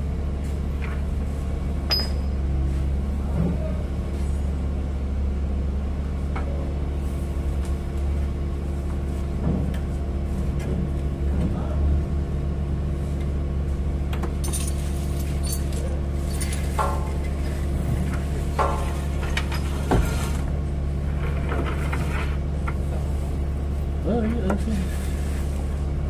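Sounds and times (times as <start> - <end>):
metal parts clinking: 14.4 - 17.3.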